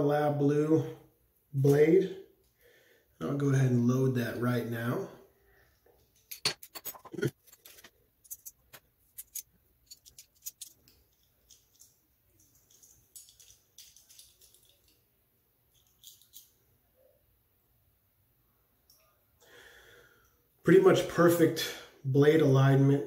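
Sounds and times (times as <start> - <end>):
metal razor parts clicking: 8.3 - 11.8.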